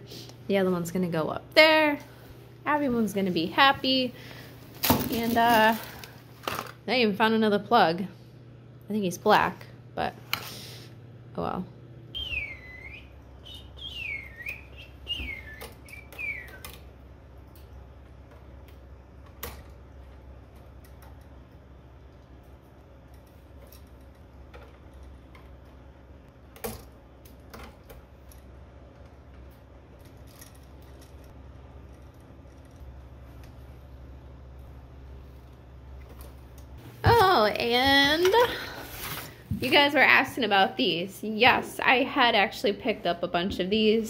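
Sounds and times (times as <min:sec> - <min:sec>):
steady low hum: 0:00.0 - 0:44.0
high gliding whistles: 0:12.2 - 0:16.7.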